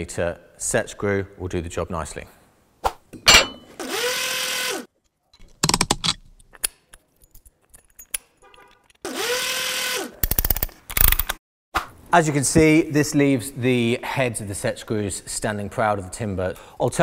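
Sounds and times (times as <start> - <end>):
cordless power driver running: 3.8 - 4.9, 9.1 - 10.1
metal parts clicking and rattling: 5.4 - 9.1.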